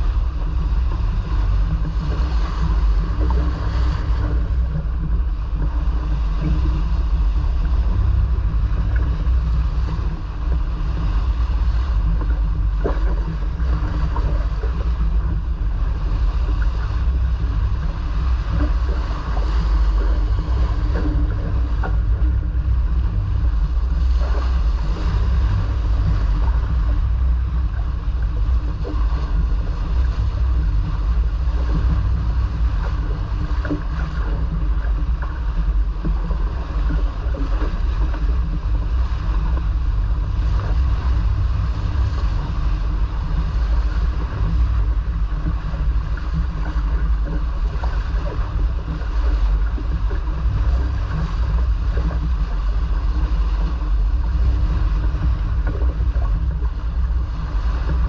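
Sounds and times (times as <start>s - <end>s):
water rushing along hull: 0.0s - 58.0s
wind rumble on microphone: 0.0s - 58.0s.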